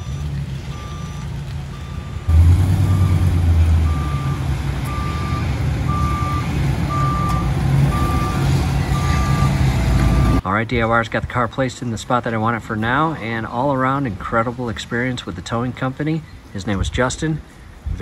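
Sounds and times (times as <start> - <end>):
reversing alarm beeping: 0.0 - 10.4
truck engine running: 0.0 - 10.4.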